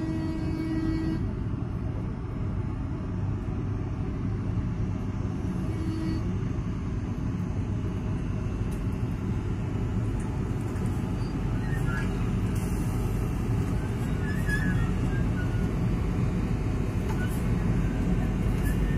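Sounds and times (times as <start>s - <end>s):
electric locomotive rumble and hum: 0.0s - 18.9s.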